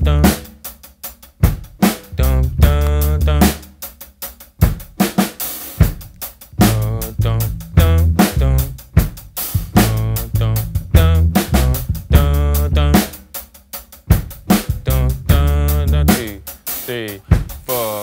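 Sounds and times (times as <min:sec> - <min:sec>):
bass line low notes: 0:00.0 - 0:00.4, 0:02.1 - 0:03.6, 0:06.5 - 0:08.9, 0:09.6 - 0:13.1, 0:14.5 - 0:16.4
person singing: 0:00.0 - 0:00.5, 0:02.1 - 0:03.6, 0:06.6 - 0:08.8, 0:09.6 - 0:13.2, 0:14.7 - 0:18.0
drum kit groove: 0:00.0 - 0:18.0.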